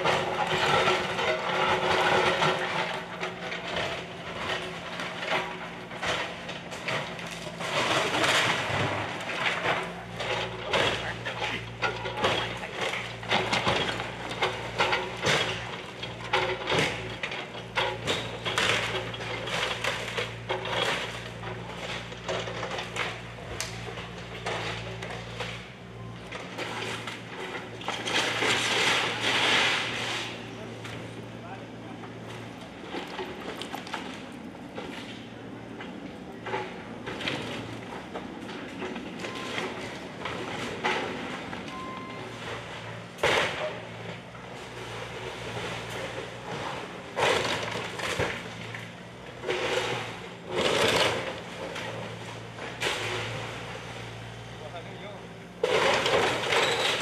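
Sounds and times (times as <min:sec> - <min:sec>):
diesel engine running: 0:00.0 - 0:57.0
falling debris crashes: 0:55.6 - 0:57.0.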